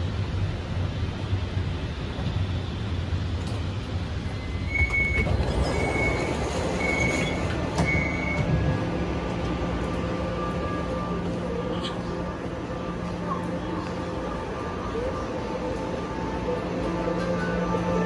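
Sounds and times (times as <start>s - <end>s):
metro train rumbling: 0.0s - 18.0s
door warning beeps: 4.5s - 8.6s.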